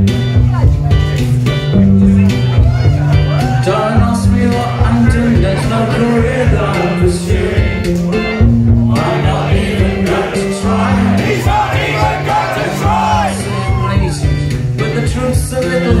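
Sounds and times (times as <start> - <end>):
bass line: 0.0 - 16.0
drums: 0.0 - 16.0
keyboard: 0.0 - 16.0
person singing: 3.4 - 8.2.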